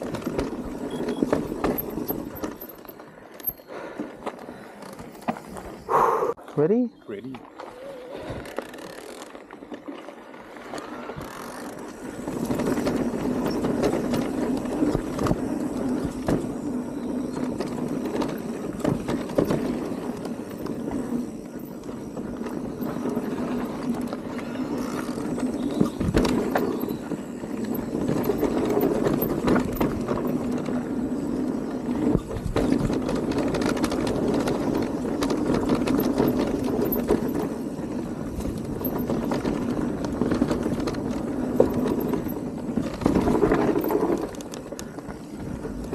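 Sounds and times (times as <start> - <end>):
bike knocking and rattling: 0.0 - 5.9, 7.4 - 45.9
bike rolling on dirt trail: 0.0 - 45.9.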